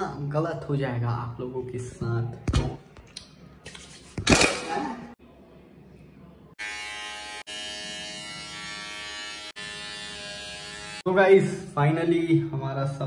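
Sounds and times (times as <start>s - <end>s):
hair trimmer motor buzzing: 6.6s - 11.1s.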